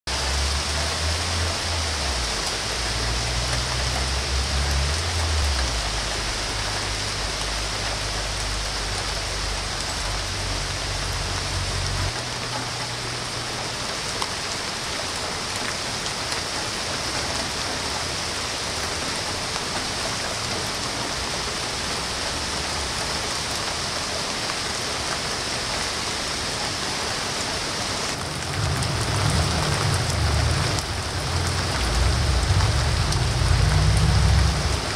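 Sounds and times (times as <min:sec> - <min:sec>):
rain falling on leaves: 0:00.1 - 0:34.9
low rumble: 0:28.2 - 0:34.9.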